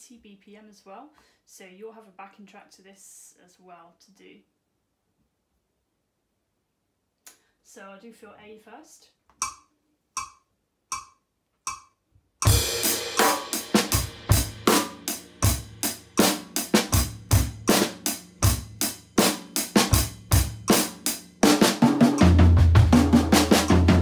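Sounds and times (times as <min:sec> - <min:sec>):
metronome clicks: 0:09.3 - 0:12.6
acoustic drum kit groove: 0:12.4 - 0:24.0.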